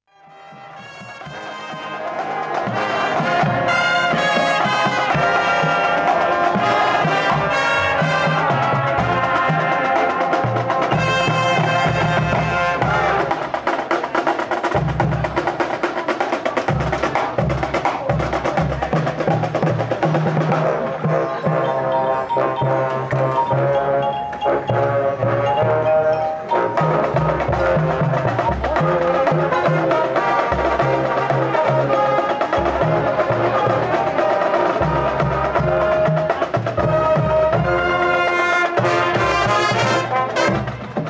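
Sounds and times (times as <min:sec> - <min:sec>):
brass chords: 0:00.0 - 0:14.0, 0:16.9 - 0:41.0
marching drums: 0:00.2 - 0:41.0.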